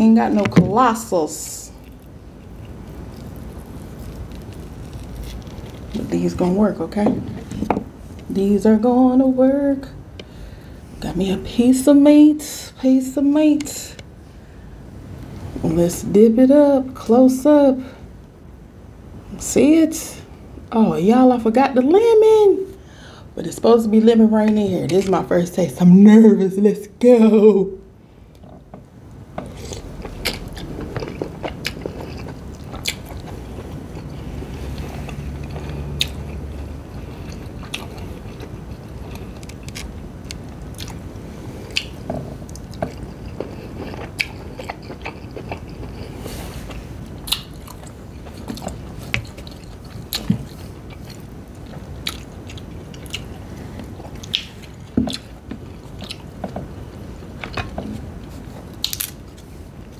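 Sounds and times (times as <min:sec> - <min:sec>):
wet chewing and smacks: 0:29.4 - 0:56.8, 0:57.4 - 0:59.9.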